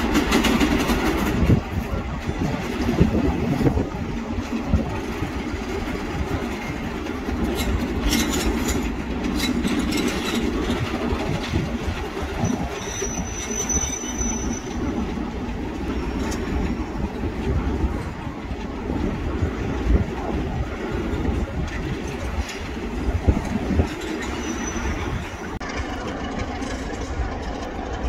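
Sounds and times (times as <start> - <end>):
diesel locomotive engine rumbling: 0.0 - 28.0
wheels clicking: 0.0 - 28.0
high wheel squeal: 12.4 - 15.0, 24.0 - 27.2.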